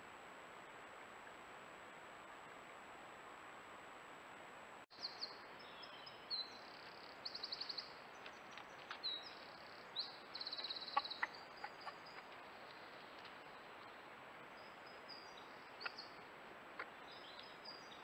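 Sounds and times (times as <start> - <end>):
microphone hiss and whine: 0.0 - 18.0
songbirds singing: 4.9 - 18.0
faint clicks: 6.8 - 9.7, 10.5 - 14.0.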